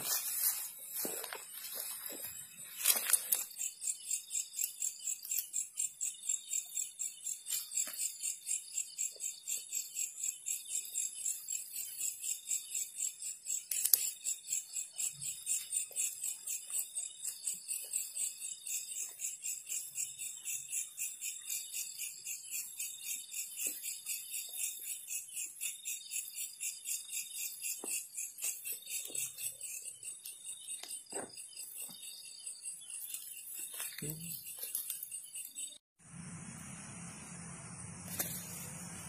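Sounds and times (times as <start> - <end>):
night insects chirping: 0.0 - 39.0.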